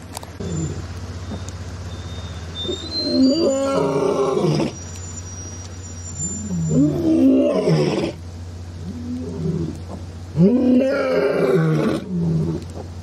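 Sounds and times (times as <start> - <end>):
lion roaring: 6.5 - 8.2, 8.8 - 12.7.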